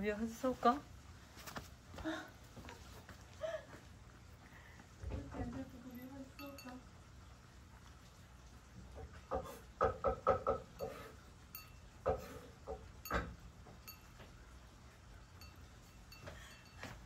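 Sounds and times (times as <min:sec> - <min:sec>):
cat chewing and lapping: 0:02.8 - 0:09.8
clinks against a ceramic bowl: 0:10.6 - 0:14.2.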